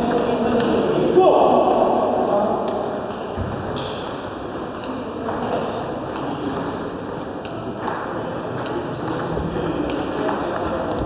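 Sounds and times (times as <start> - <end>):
high-pitched squeaks: 6.4 - 7.3, 8.9 - 11.0.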